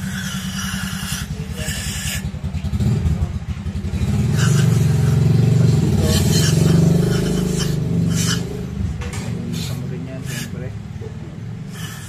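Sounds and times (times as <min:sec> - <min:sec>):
engine running: 0:00.0 - 0:12.0
aerosol can spraying: 0:04.4 - 0:04.9, 0:06.0 - 0:08.4, 0:09.6 - 0:10.6, 0:11.8 - 0:12.0.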